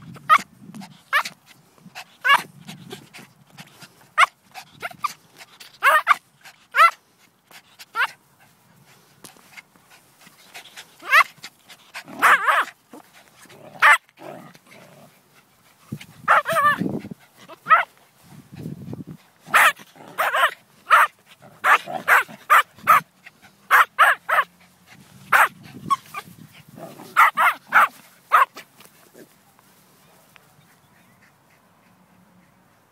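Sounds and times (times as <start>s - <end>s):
small dogs yapping: 1.1s - 1.4s, 2.2s - 3.0s, 3.7s - 8.2s, 10.2s - 15.1s, 16.0s - 17.9s, 19.5s - 23.1s, 23.7s - 28.7s
dog growling: 11.9s - 15.2s, 26.7s - 27.8s.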